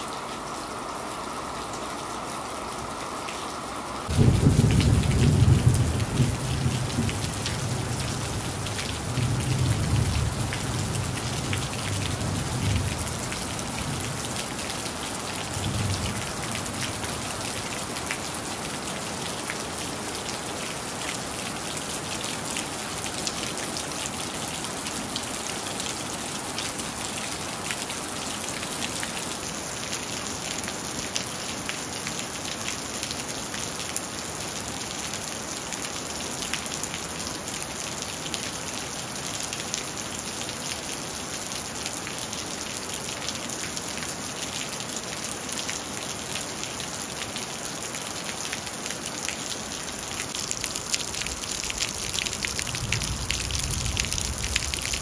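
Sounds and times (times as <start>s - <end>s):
rain on hard surface: 0.0s - 55.0s
thunder rumbling: 4.1s - 14.1s, 51.2s - 55.0s.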